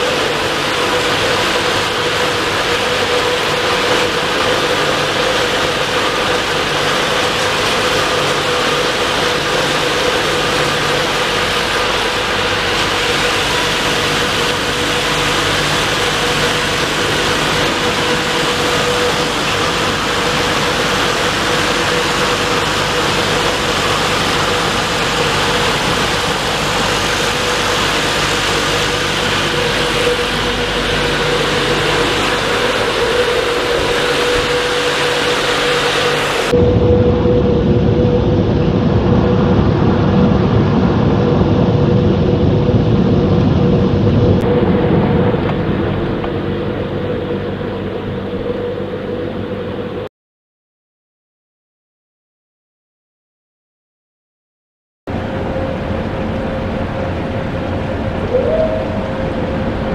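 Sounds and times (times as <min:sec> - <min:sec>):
blower fans rushing air: 0:00.0 - 0:50.1, 0:55.1 - 0:59.9
fan hum and whine: 0:00.0 - 0:50.1, 0:55.1 - 0:59.9.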